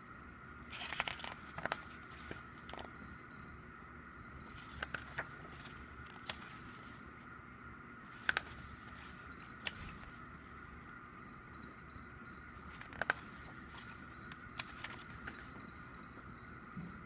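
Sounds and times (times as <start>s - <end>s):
faint high hum: 0.0s - 17.0s
photobook pages flicking: 0.7s - 2.9s, 4.5s - 7.0s, 8.1s - 10.2s, 12.6s - 15.6s.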